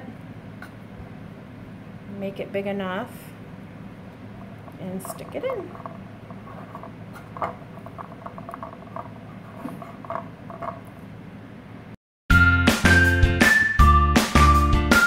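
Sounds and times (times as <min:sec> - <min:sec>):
background music: 0:12.3 - 0:15.0.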